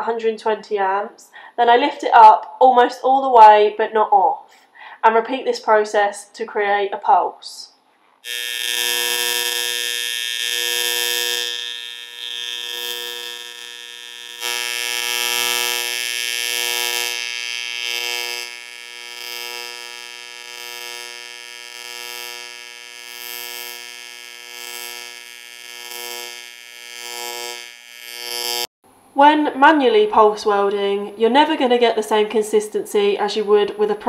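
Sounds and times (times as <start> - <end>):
welding arc buzzing: 8.2 - 28.7.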